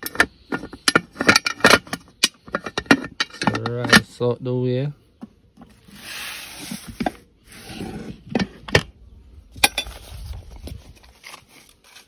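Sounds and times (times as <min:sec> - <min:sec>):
handling rustling: 0:09.6 - 0:12.0.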